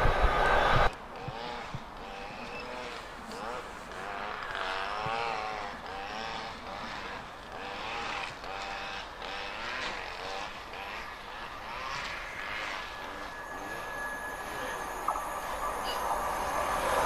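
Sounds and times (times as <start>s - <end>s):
wheel and rail whine: 0.0s - 17.0s
train rumble: 10.6s - 17.0s.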